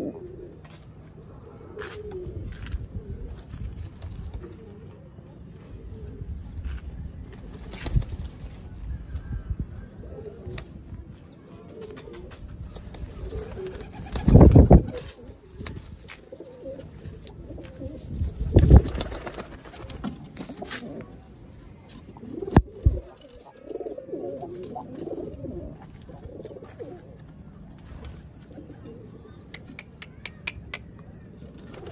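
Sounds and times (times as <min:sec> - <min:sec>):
pigeons cooing: 0:00.0 - 0:00.7, 0:13.0 - 0:21.3, 0:22.1 - 0:27.2.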